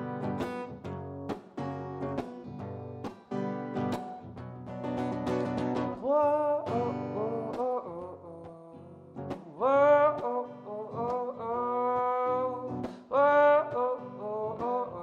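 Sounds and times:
strummed acoustic guitar: 0.0 - 15.0
man singing: 5.8 - 15.0.

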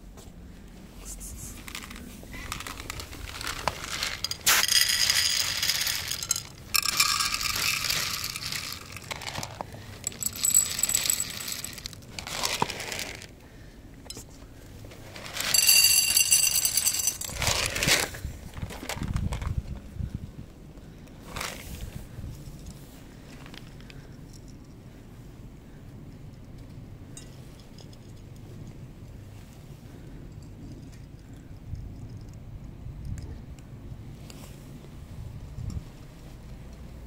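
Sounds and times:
kibble rattling into bowls: 1.6 - 13.3, 15.0 - 19.6.

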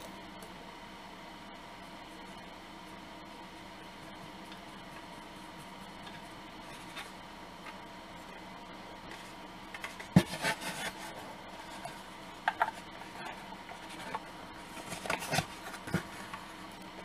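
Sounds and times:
brush rubbing and scraping: 4.0 - 7.2, 9.1 - 16.7.

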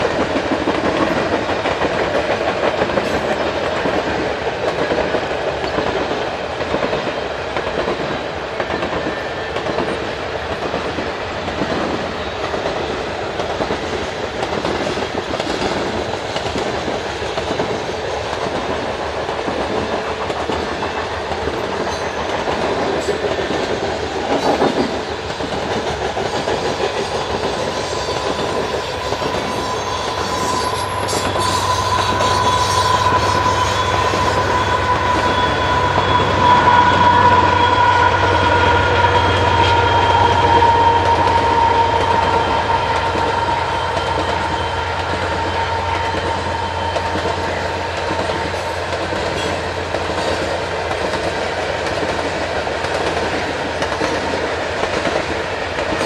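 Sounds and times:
diesel locomotive engine drone: 0.0 - 56.0
train wheels clicking over rail joints: 0.0 - 56.0
high whine: 28.6 - 47.6.

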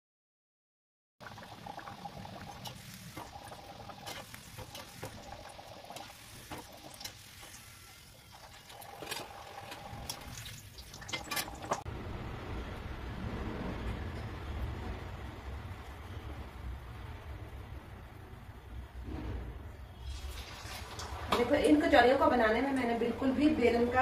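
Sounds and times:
food frying in oil: 1.2 - 11.9, 20.0 - 22.9.

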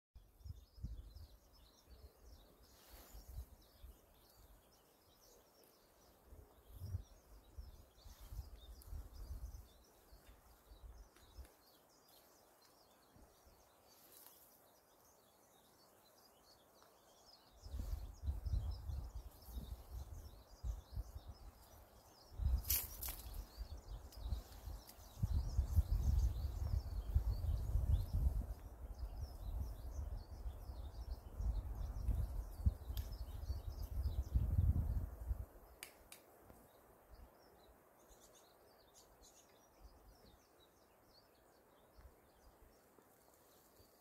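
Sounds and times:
wind gusting over microphone: 17.6 - 21.4, 22.3 - 35.6.

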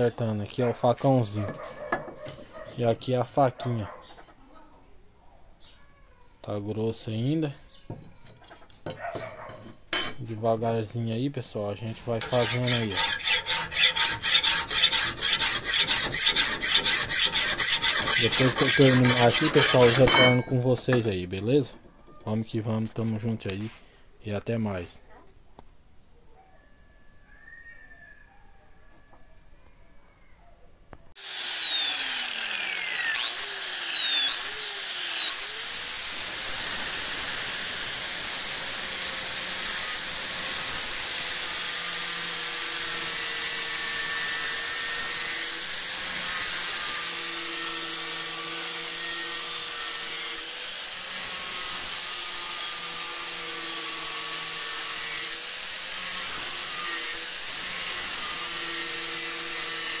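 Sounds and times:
low hum of grinding: 11.8 - 21.6, 31.2 - 60.0
grinder whining on steel: 12.0 - 21.2, 31.2 - 60.0.

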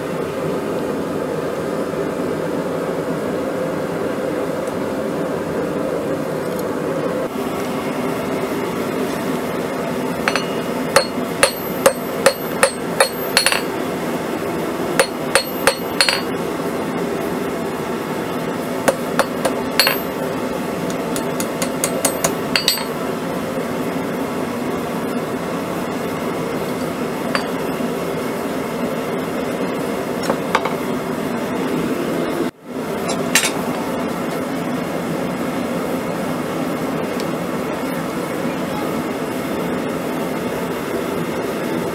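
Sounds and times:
hammer clanging on anvil: 10.3 - 13.7, 15.0 - 16.3, 18.9 - 20.2, 21.2 - 23.0, 27.4 - 27.6.

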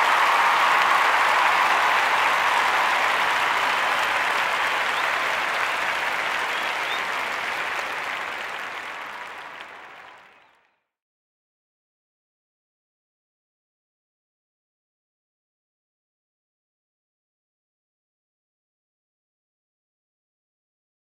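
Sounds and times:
crowd applauding: 0.0 - 10.8.

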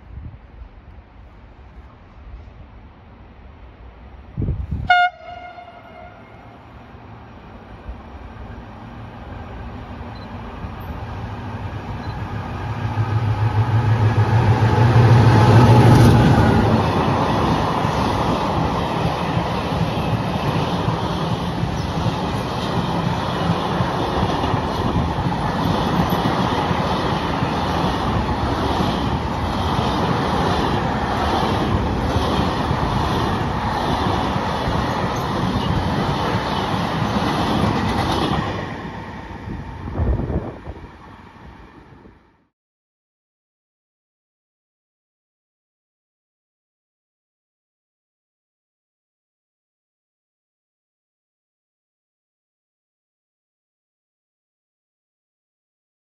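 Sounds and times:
electric train low hum: 0.0 - 42.5.

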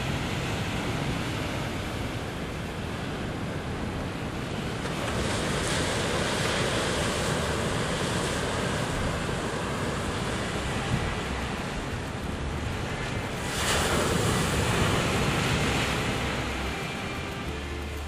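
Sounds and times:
ocean surf breaking: 0.0 - 18.0
wind buffeting microphone: 0.0 - 18.0.

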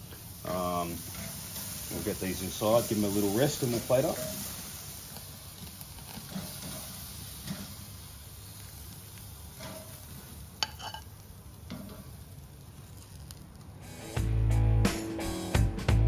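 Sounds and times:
meat sizzling on a plate: 0.0 - 14.2
metal tongs clinking on plate: 10.6 - 11.1.

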